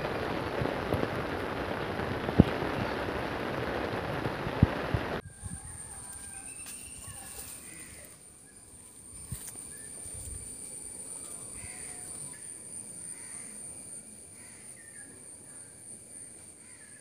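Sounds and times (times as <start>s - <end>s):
heavy rain pouring: 0.0s - 5.2s.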